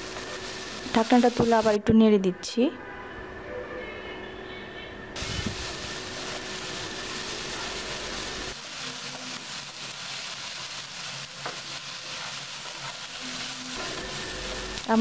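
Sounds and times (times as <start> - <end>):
vegetables sizzling in pan: 0.0 - 1.8, 5.2 - 15.0.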